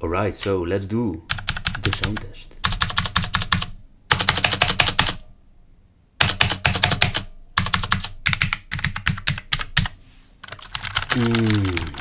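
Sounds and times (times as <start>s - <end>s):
clicky keyboard typing: 1.3s - 5.2s, 6.2s - 12.0s.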